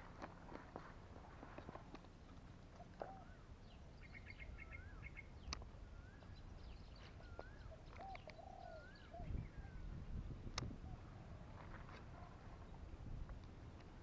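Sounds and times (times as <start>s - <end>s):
birdsong chirps and whistles: 2.7s - 11.4s.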